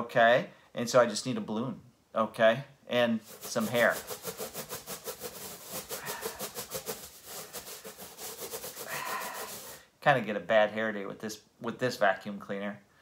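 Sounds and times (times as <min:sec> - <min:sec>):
balloon rubbing on hair: 0:03.1 - 0:09.9.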